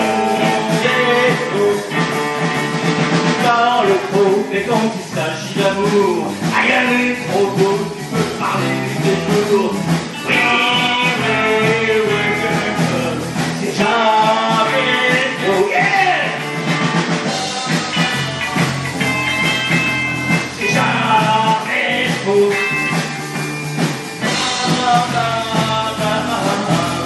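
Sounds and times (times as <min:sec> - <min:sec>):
person singing: 0:00.0 - 0:02.4, 0:03.3 - 0:16.5, 0:20.4 - 0:23.2, 0:24.2 - 0:27.0
drums: 0:00.0 - 0:27.0
electric guitars: 0:00.0 - 0:27.0.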